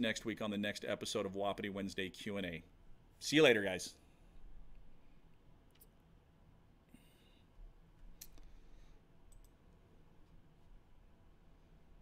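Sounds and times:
faint computer mouse clicks: 9.3 - 9.6.

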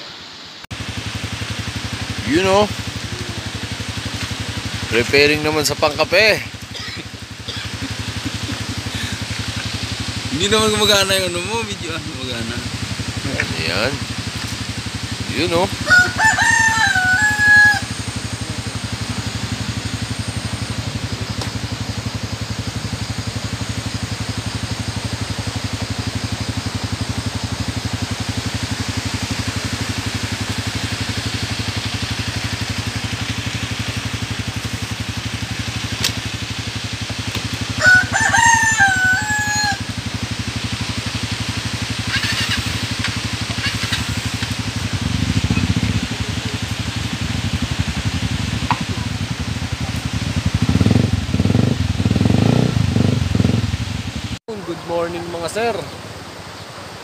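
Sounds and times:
low drone: 0.0 - 54.3
rooster crowing: 15.6 - 19.8, 37.6 - 40.1.

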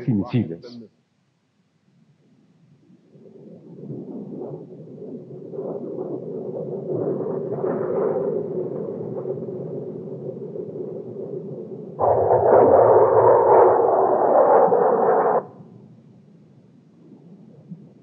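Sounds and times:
bombs bursting rumble: 12.0 - 15.4
jet engine roar: 12.0 - 15.8.

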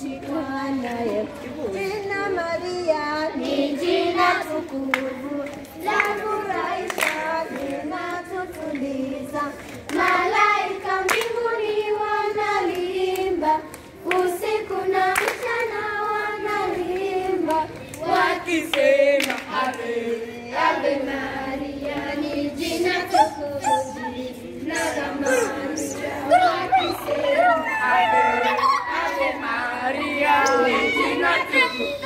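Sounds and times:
sharp claps: 4.9 - 8.9, 11.0 - 11.4, 15.1 - 15.8, 16.9 - 19.8
children singing: 19.6 - 32.0.

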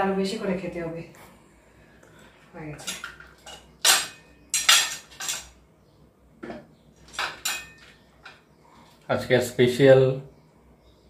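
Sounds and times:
knife clinking on steel plate: 2.8 - 5.5, 7.2 - 7.9.

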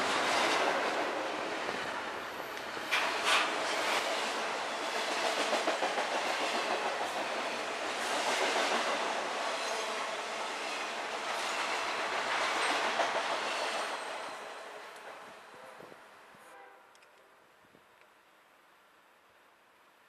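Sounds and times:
freight train rumbling: 0.0 - 15.9.

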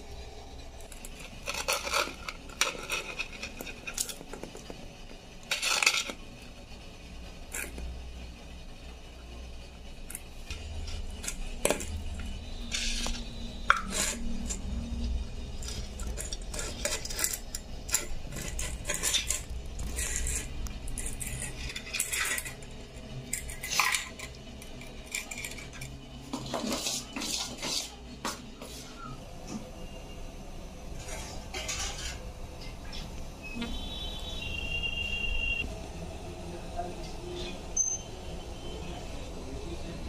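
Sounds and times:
metal utensil scraping steel plate: 1.0 - 4.7, 5.4 - 6.5, 7.2 - 8.1, 10.0 - 29.2, 30.9 - 32.3.

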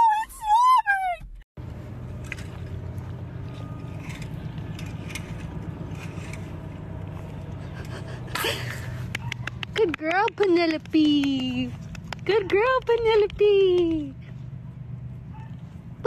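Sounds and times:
brush scraping hide: 2.1 - 9.1.

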